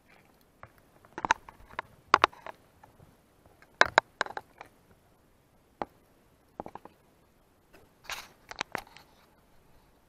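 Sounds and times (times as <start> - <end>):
sharp clicks and knocks: 0.6 - 4.7, 6.6 - 7.0.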